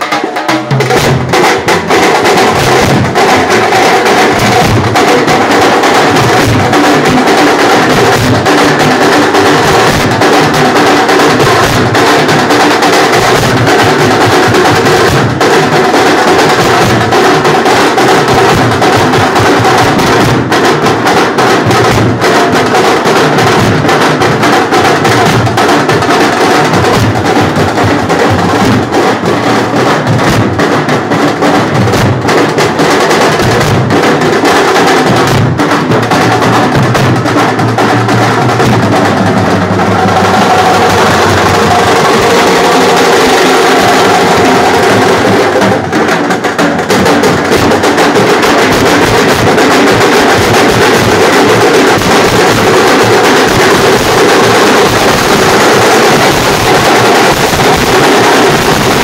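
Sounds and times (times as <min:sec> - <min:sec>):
drum troupe playing rhythm: 0:00.0 - 0:59.0.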